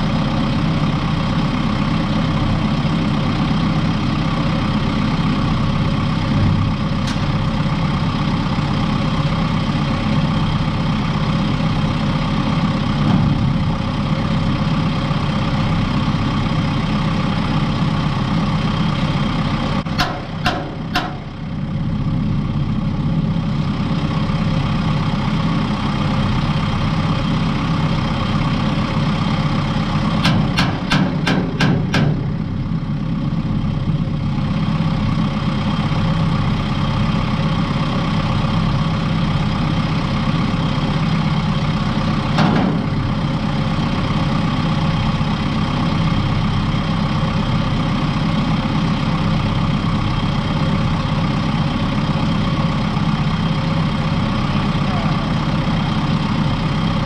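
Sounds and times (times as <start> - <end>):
tractor diesel engine idling: 0.0 - 57.0
sharp metal knocks: 20.0 - 21.2, 30.2 - 32.3.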